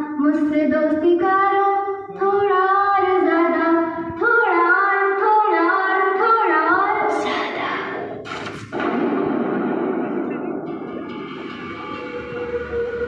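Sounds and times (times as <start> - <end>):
girl singing long notes: 0.0 - 7.7.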